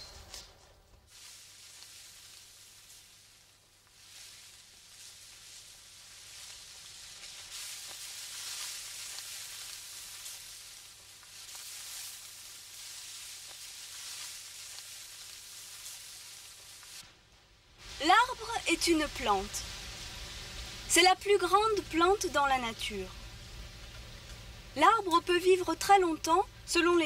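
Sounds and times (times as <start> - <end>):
dry wheat rustling: 0.0 - 17.1.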